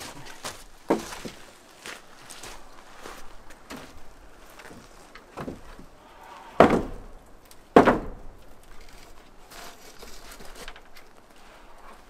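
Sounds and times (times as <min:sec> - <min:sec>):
wooden boards knocking: 0:06.6 - 0:07.1, 0:07.7 - 0:08.4.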